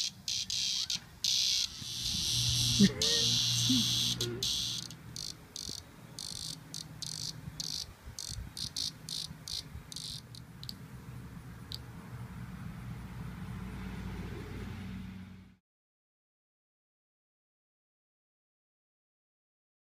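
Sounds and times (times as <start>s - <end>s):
cicada buzzing in bursts: 0.0s - 10.8s.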